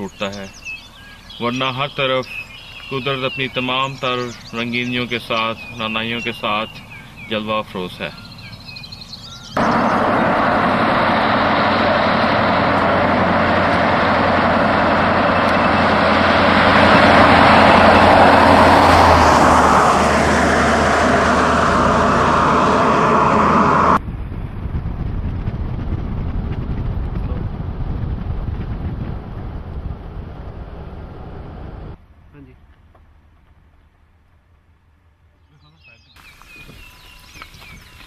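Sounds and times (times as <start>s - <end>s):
motorhome driving past: 9.6s - 24.0s, 27.5s - 32.0s
steady wind rush: 9.6s - 32.0s.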